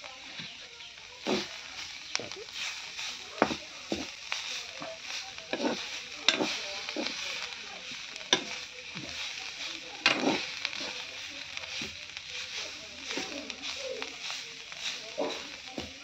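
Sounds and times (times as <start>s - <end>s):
greens sizzling in a pan: 0.0s - 16.0s
metal spoon scraping pan: 2.5s - 11.1s.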